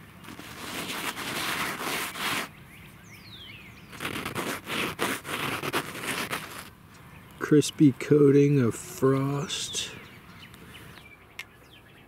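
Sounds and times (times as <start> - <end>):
hand rubbing frosty fabric: 0.2 - 2.5, 3.9 - 6.7.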